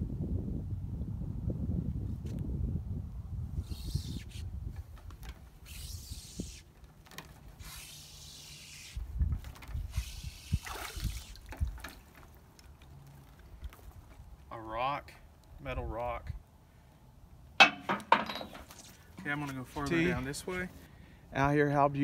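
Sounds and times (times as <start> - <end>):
wet rope hauled from water: 5.2 - 14.3
dripping and swishing water: 5.2 - 14.5.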